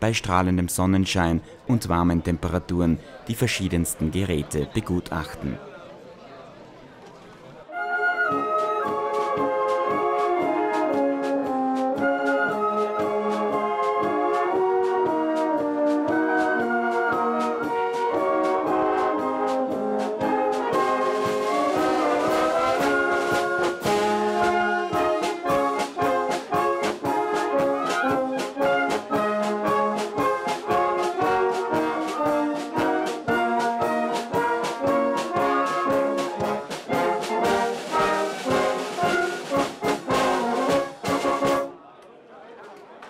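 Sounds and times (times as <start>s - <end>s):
wind band playing a tune: 7.7s - 41.7s
steady drum beat: 17.3s - 41.7s.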